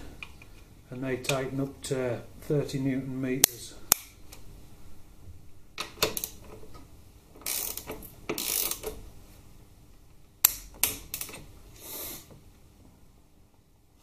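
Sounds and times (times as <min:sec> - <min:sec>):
socket ratchet clicking: 0:07.4 - 0:09.0.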